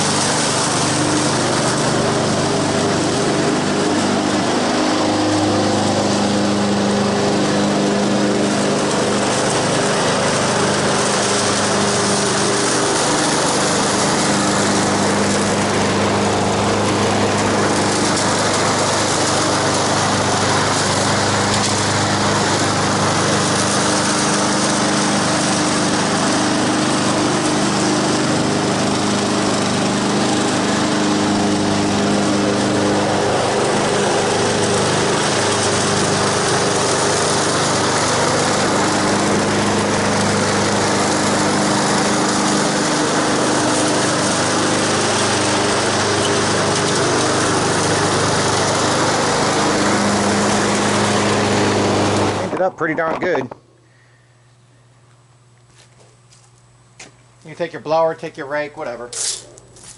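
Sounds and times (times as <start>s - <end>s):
lawn mower engine running: 0.0s - 59.9s
mower mulching dry leaves: 0.0s - 59.9s.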